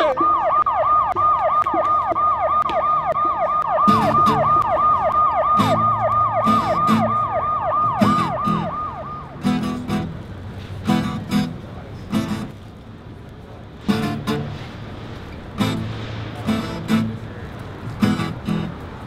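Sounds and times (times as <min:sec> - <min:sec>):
siren fast sweeping: 0:00.0 - 0:09.3
strummed guitar chords: 0:03.9 - 0:04.9, 0:05.6 - 0:12.6, 0:13.8 - 0:14.8, 0:15.6 - 0:17.3, 0:17.9 - 0:19.0.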